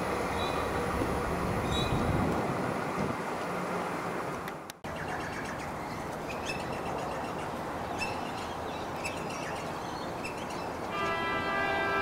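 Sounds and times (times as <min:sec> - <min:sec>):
train rolling on rails: 0:00.0 - 0:04.9.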